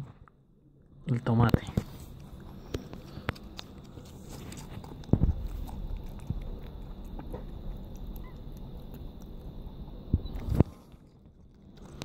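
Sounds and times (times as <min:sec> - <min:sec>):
rabbit chewing: 0:01.3 - 0:12.0.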